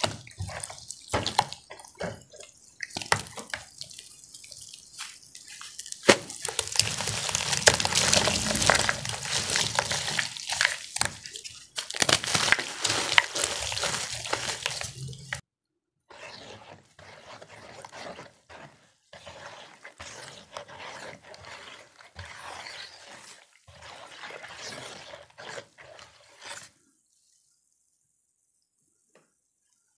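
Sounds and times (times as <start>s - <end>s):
squelching and splashing in water: 0.0s - 15.4s, 16.4s - 26.7s
brush swishing through water: 3.7s - 15.4s, 16.1s - 26.7s.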